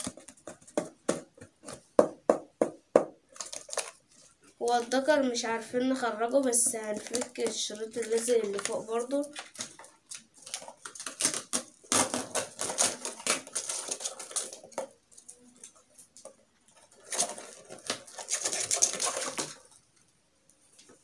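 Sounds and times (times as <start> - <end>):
packing tape peeling off cardboard: 9.3 - 14.9, 16.9 - 19.7.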